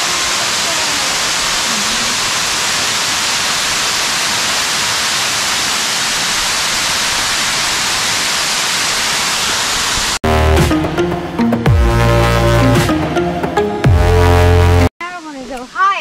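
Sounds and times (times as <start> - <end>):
waterfall rushing: 0.0 - 10.4.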